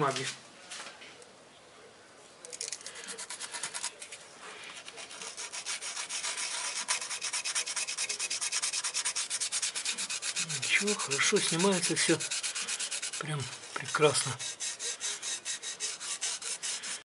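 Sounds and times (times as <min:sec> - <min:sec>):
sandpaper rubbing on metal: 0:02.8 - 0:04.1, 0:04.8 - 0:17.0.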